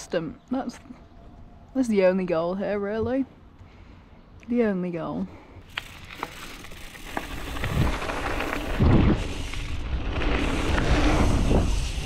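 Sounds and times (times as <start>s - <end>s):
bike tyres rumbling: 5.6s - 12.0s
wind rushing over microphone: 7.4s - 12.0s.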